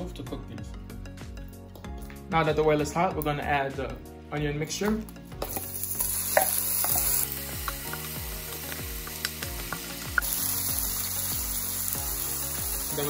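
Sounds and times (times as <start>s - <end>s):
vegetables sizzling in oil: 5.4s - 13.0s.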